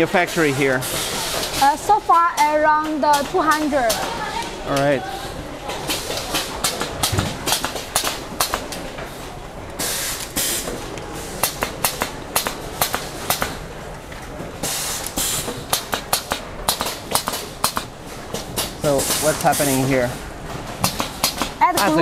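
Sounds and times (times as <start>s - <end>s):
short bursts of hiss: 9.8s - 10.7s, 14.6s - 15.6s.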